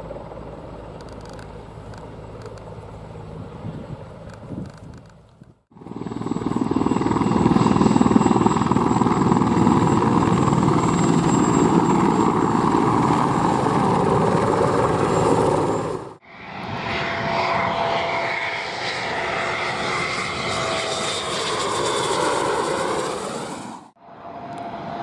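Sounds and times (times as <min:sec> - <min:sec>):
helicopter rotor beat: 0:00.0 - 0:05.1, 0:05.7 - 0:25.0
turbine whine: 0:05.7 - 0:25.0.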